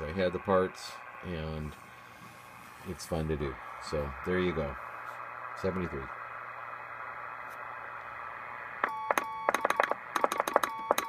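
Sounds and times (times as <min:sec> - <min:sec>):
receiver hiss: 0:00.0 - 0:11.0
morse code tone: 0:08.8 - 0:11.0.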